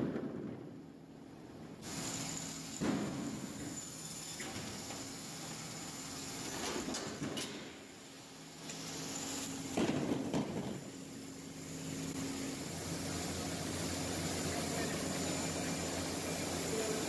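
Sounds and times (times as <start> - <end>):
band saw running with whine: 11.2 - 17.0.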